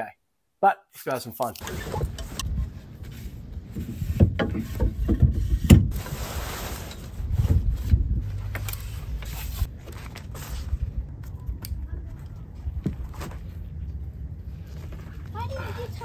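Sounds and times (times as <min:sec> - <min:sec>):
low rumble: 0:05.0 - 0:15.4.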